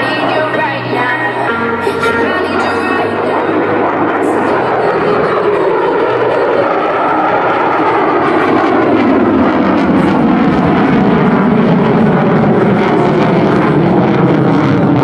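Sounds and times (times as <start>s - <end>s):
jet engine rumble: 0.0s - 15.0s.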